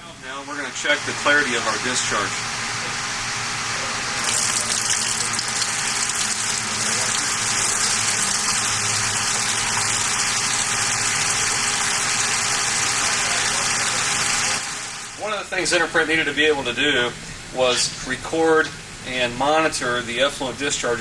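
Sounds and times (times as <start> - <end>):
low machinery hum: 0.0 - 21.0
water pouring into plastic bucket: 4.2 - 13.0.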